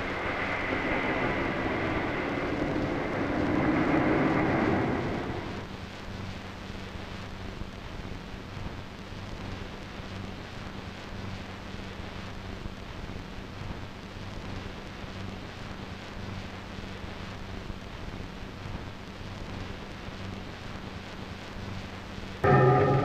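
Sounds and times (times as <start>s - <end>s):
low hum: 0.0s - 5.8s, 22.4s - 23.0s
steady hiss: 0.0s - 15.3s
music with ringing chords: 22.4s - 23.0s.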